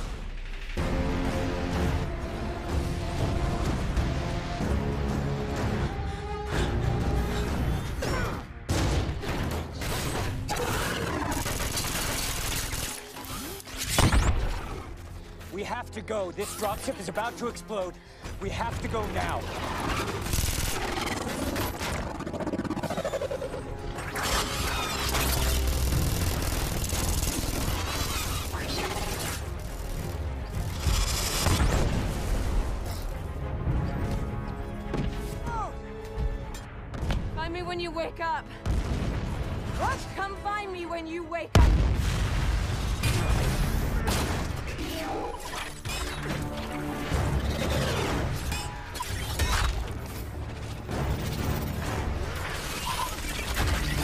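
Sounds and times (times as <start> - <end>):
music: 0.0 - 54.0
explosions: 38.6 - 39.9, 41.6 - 44.7.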